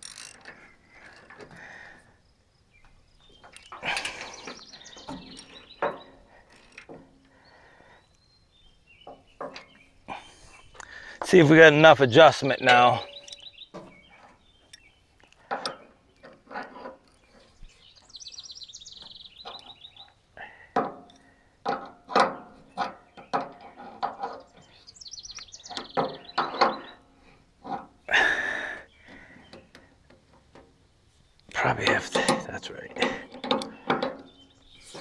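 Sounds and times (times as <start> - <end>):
songbird trilling: 2.7 - 6.4, 11.7 - 15.1, 17.3 - 20.2, 24.4 - 27.1
hand tools clinking on metal: 3.4 - 7.2, 12.2 - 17.4, 31.5 - 35.0.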